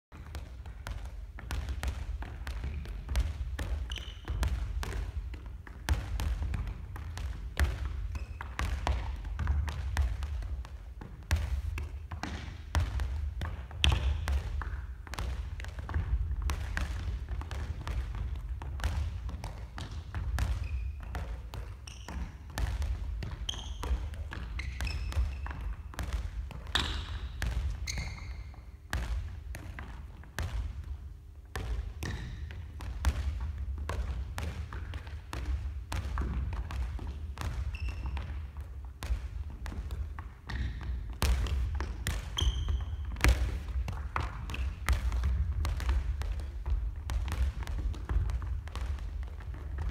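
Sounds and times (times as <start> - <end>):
balls bouncing on wooden floor: 0.1 - 49.9
feet tapping balls: 0.1 - 49.9.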